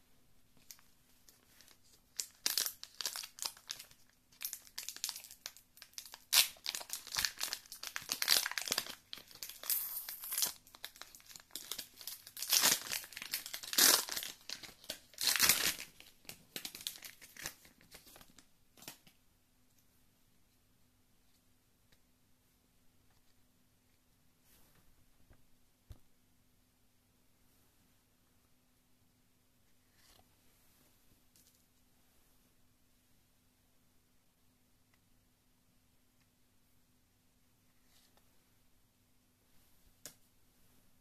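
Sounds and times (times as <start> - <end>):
foil wrapper crinkling and tearing: 1.6 - 18.3.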